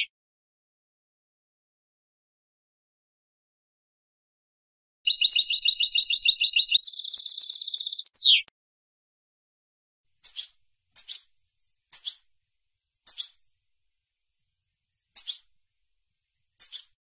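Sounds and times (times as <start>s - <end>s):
bird call notes: 5.1s - 8.5s, 10.2s - 11.3s, 11.9s - 12.3s, 13.0s - 13.4s, 15.1s - 15.5s, 16.6s - 17.0s
finch singing: 5.1s - 8.5s, 10.2s - 15.5s, 16.1s - 17.0s.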